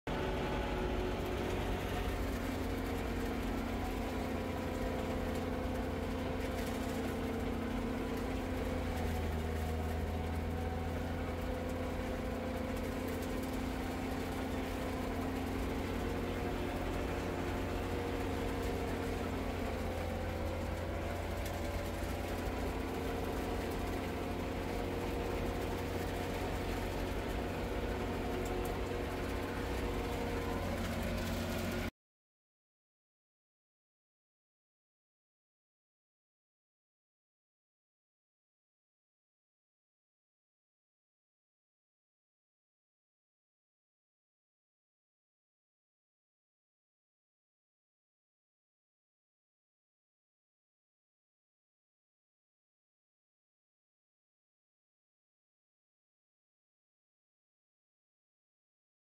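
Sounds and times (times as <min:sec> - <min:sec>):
tractor diesel engine running: 0:00.1 - 0:31.9.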